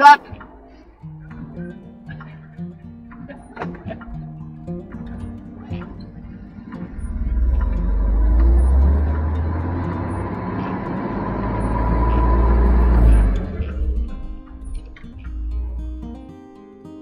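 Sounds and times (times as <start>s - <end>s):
faint steady whine: 0.0s - 16.6s
vehicle driving on snowy road: 6.5s - 16.0s.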